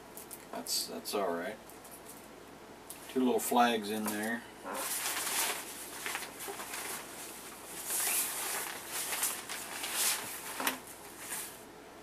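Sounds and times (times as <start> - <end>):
plastic bag and paper crinkling: 3.9 - 11.6.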